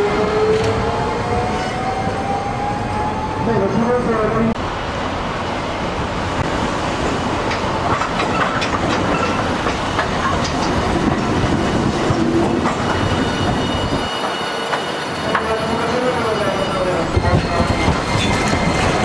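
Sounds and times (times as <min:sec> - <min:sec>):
tram rolling past: 0:00.0 - 0:19.0
wheels clicking over rail joints: 0:07.4 - 0:13.1.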